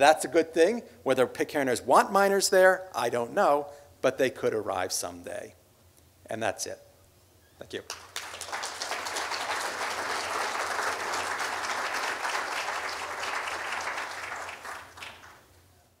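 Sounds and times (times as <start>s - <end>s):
audience applauding: 7.9s - 15.5s.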